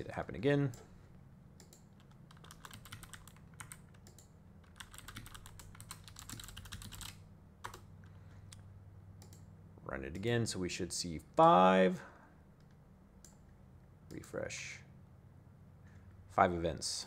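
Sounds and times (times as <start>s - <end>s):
keyboard typing clicks: 1.6s - 7.9s, 9.2s - 9.5s.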